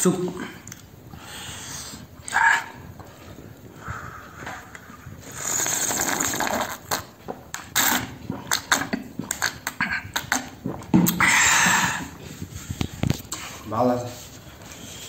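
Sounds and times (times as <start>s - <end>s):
slurping soup: 4.6s - 13.7s
swallows and wet mouth clicks: 4.7s - 12.1s.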